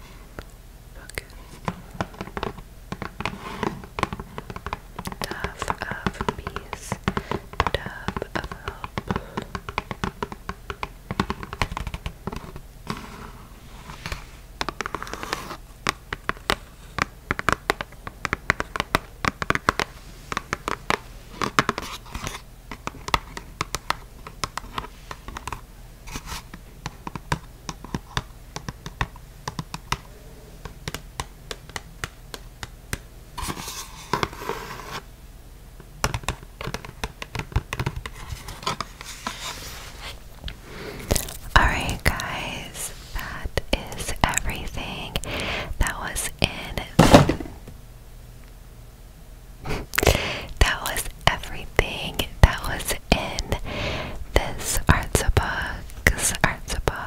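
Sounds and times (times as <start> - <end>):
fingernails tapping on card: 2.0 - 13.0, 14.6 - 25.6, 26.8 - 33.0, 36.0 - 38.9
fingernails rubbing card: 14.8 - 15.6.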